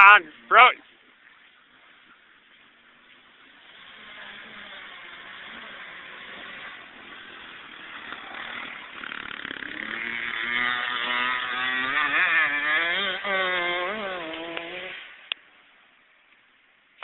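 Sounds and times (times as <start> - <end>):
dirt bike engines revving: 0.0 - 15.4.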